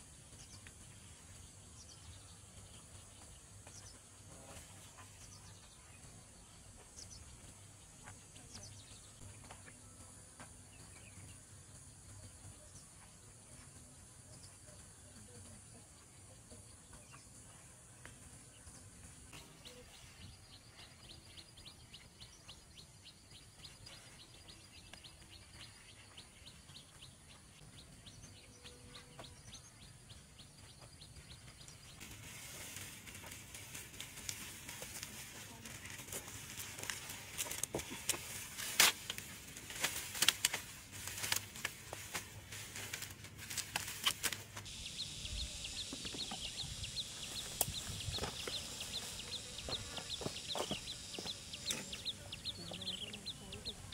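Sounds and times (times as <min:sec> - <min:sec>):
high insect-like ticks: 0:31.5 - 0:53.9
dry branches rustling and crackling: 0:32.0 - 0:45.3.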